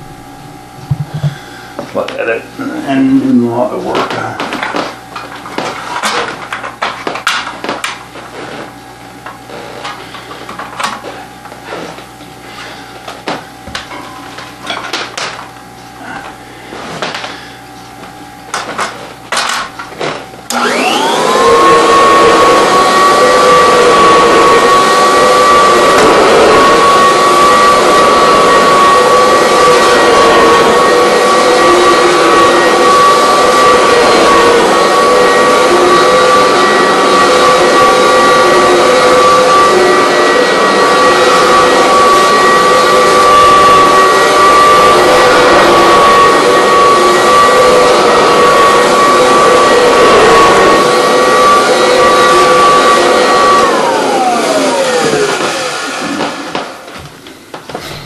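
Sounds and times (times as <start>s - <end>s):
vacuum cleaner motor whining: 0.0s - 58.0s.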